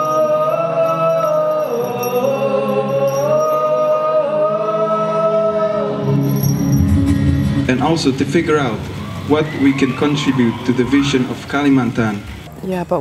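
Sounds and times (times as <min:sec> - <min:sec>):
high voice singing slow song: 0:00.0 - 0:08.2
sustained low chords: 0:04.6 - 0:09.5.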